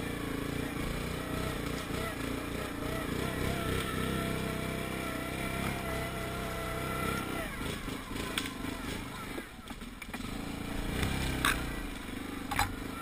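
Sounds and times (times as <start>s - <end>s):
atv engine running: 0.0s - 13.0s.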